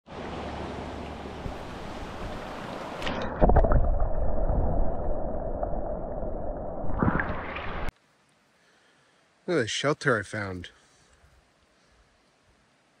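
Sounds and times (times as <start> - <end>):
creek water running: 0.1 - 6.0, 6.8 - 12.8
water splashes: 0.1 - 7.9.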